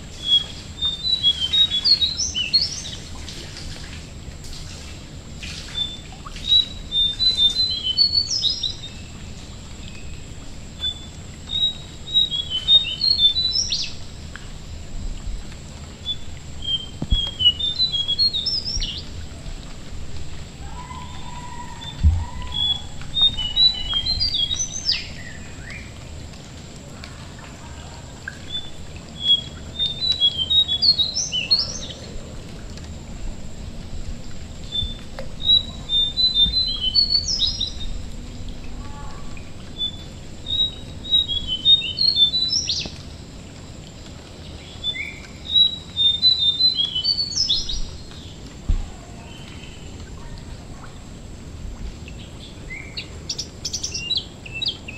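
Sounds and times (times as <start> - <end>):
rain dripping: 0.0 - 54.9
bird singing high chirping phrases: 0.2 - 3.0, 5.8 - 9.1, 10.8 - 14.0, 16.1 - 19.1, 20.7 - 26.0, 27.6 - 32.2, 34.7 - 38.1, 38.7 - 43.0, 44.6 - 50.4.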